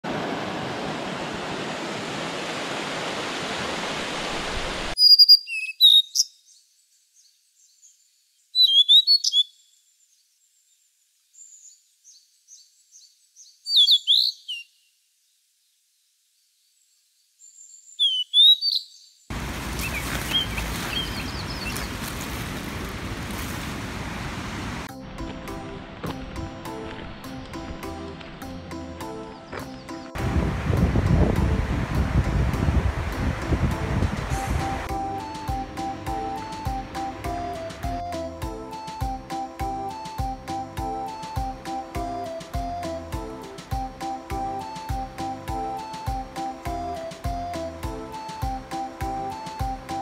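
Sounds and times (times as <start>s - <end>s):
rushing creek water: 0.0s - 5.0s, 19.3s - 24.9s, 25.6s - 37.9s
songbird chirping: 4.9s - 24.1s, 28.1s - 30.2s, 34.6s - 50.0s.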